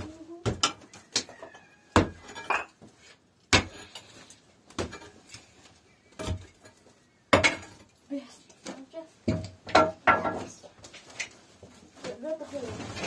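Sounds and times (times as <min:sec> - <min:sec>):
hard objects knocking and clinking: 0:00.4 - 0:02.9, 0:06.1 - 0:08.0.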